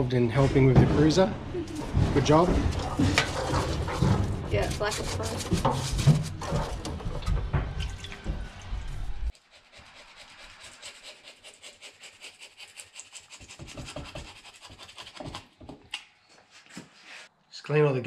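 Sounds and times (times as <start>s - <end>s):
parts washer running: 0.6s - 9.3s
metal scraper scraping gasket: 2.2s - 7.1s.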